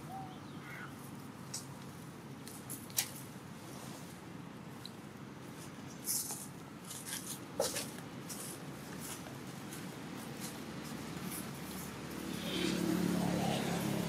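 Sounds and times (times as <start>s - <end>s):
low background noise: 0.0s - 14.0s
dry leaves crackling: 4.7s - 14.0s.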